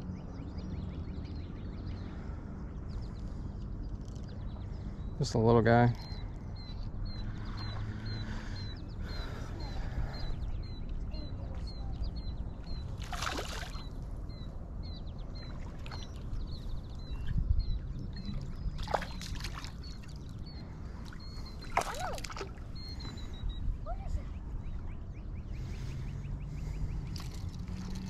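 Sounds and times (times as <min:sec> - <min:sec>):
bird chirping: 0:00.0 - 0:28.0
fish splashing in water: 0:13.0 - 0:13.9, 0:21.6 - 0:22.7.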